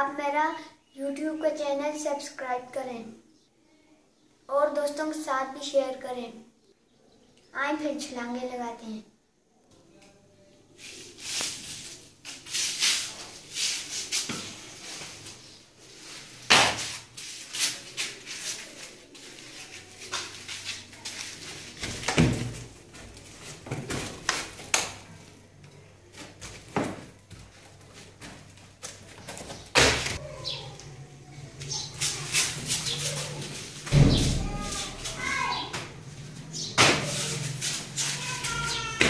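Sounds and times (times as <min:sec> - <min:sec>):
child landing on concrete floor: 0:16.5 - 0:17.1, 0:20.1 - 0:25.0, 0:26.2 - 0:27.5, 0:33.8 - 0:36.0
scuffing footsteps: 0:16.5 - 0:24.7, 0:26.1 - 0:29.7, 0:31.6 - 0:39.0.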